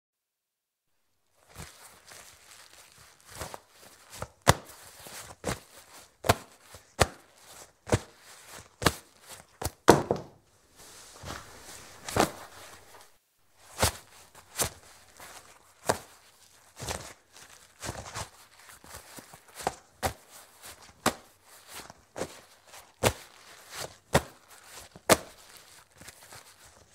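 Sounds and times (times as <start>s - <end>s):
leather rustling: 1.4s - 20.9s
leather slaps and taps: 4.4s - 4.8s, 6.2s - 7.3s, 8.8s - 10.4s, 11.3s - 13.1s, 15.8s - 16.1s, 25.0s - 25.4s.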